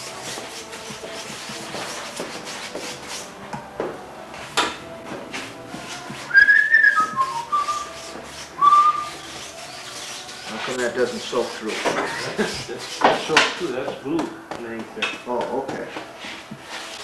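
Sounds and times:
brush scratching on fabric: 0:00.0 - 0:03.3, 0:07.6 - 0:13.8, 0:16.0 - 0:17.0
person whistling a tune: 0:06.3 - 0:07.9, 0:08.6 - 0:09.2.

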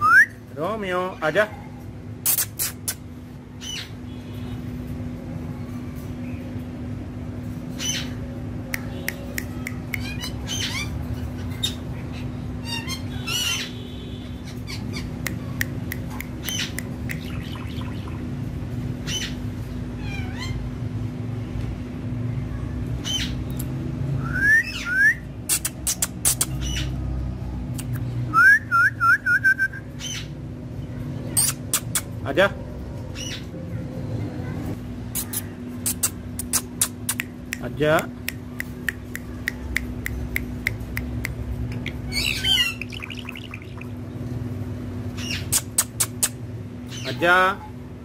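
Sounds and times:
steady low hum: 0:01.6 - 0:28.4, 0:29.5 - 0:48.0
parakeet squawking: 0:03.6 - 0:04.0, 0:07.8 - 0:08.2, 0:09.5 - 0:13.8, 0:14.4 - 0:15.6, 0:16.2 - 0:18.3, 0:19.0 - 0:19.4, 0:20.0 - 0:20.6, 0:25.5 - 0:27.0, 0:30.0 - 0:30.4, 0:31.3 - 0:32.2, 0:33.1 - 0:33.5, 0:41.8 - 0:44.0, 0:45.2 - 0:47.7
faint bird chirps: 0:16.4 - 0:18.3.

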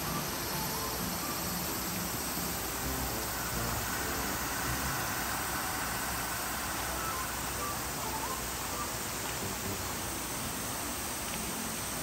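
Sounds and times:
cicadas droning: 0:00.0 - 0:12.0
constant hiss: 0:00.0 - 0:12.0.

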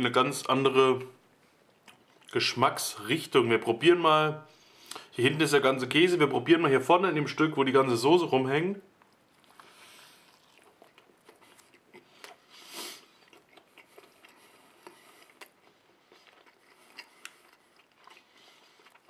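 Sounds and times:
person chewing food: 0:01.5 - 0:02.4, 0:09.0 - 0:19.0
short breathy hiss: 0:12.5 - 0:13.1.

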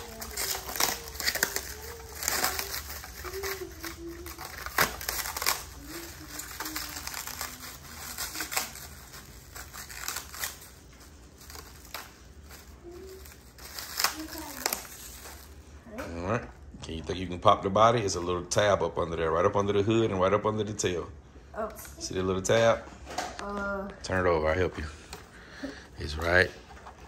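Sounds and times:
plastic wrapping crinkling: 0:00.0 - 0:15.9.

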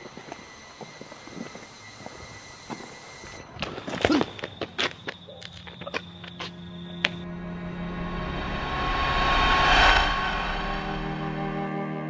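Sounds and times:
dark sustained chord: 0:06.8 - 0:12.0
orchestral rush: 0:07.2 - 0:12.0.

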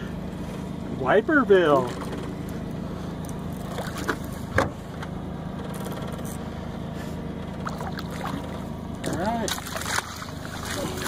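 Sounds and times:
boat motor droning: 0:00.0 - 0:11.0.

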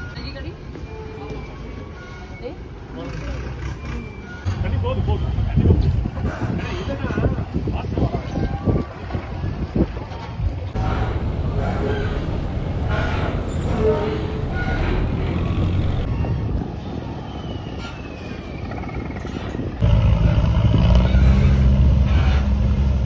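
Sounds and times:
boat engines rumbling: 0:10.4 - 0:23.0
deep diesel rumble: 0:10.7 - 0:16.1, 0:19.3 - 0:23.0.

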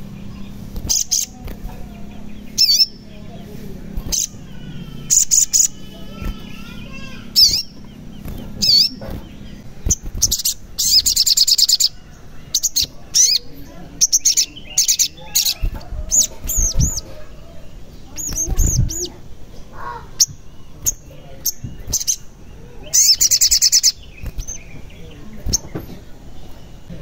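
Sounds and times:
bird chirping and trilling: 0:00.0 - 0:27.0.

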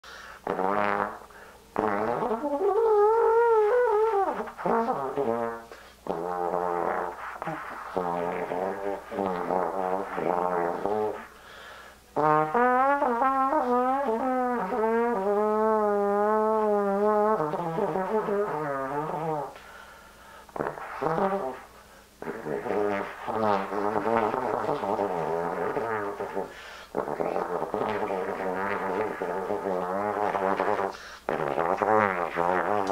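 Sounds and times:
trombone sliding phrases: 0:00.0 - 0:32.9.

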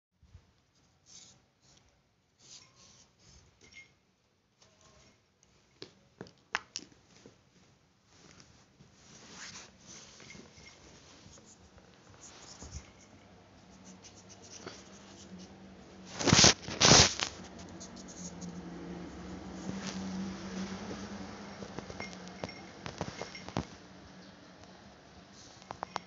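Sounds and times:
scratching and rustling on microphone: 0:07.1 - 0:23.8
loud rubbing noises: 0:13.7 - 0:20.9.

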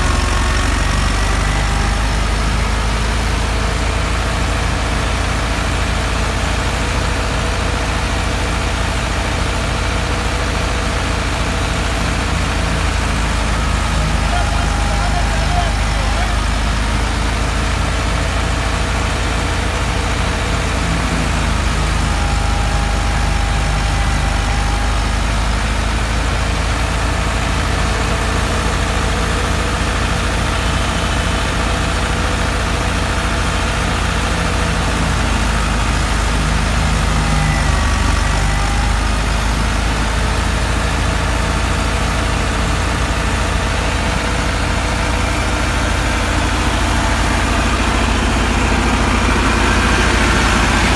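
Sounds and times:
tractor diesel engine running: 0:00.0 - 0:50.9
thresher drum droning: 0:10.9 - 0:50.9.

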